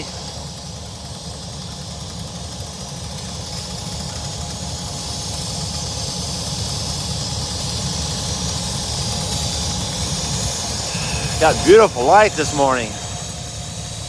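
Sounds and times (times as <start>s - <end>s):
diesel locomotives idling: 0.0s - 14.0s
high hiss: 9.2s - 14.0s.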